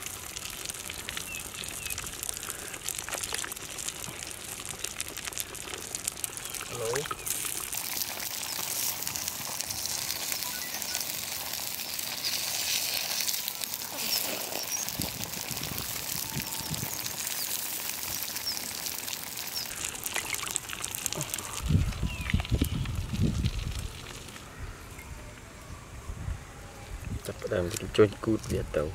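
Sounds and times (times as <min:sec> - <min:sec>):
water boiling with steady hiss: 0:00.0 - 0:28.9
faint bird chirps: 0:10.0 - 0:11.2, 0:13.8 - 0:15.1
carcass scraped in water: 0:12.1 - 0:15.5.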